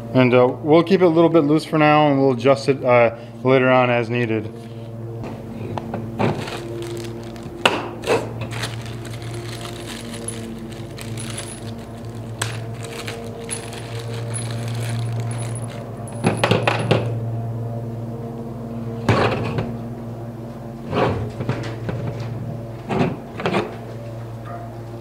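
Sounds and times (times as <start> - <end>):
steady electrical hum: 0.0 - 25.0
plastic bags crinkling: 6.2 - 16.8
small metal parts clinking: 6.4 - 17.1.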